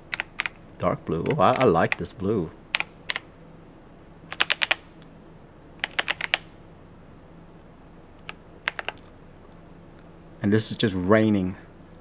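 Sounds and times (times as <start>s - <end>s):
faint low hum: 0.0s - 12.0s
mechanical keyboard keystrokes: 0.1s - 0.6s, 1.2s - 2.1s, 2.7s - 3.2s, 4.3s - 4.8s, 5.8s - 6.5s, 8.2s - 9.1s.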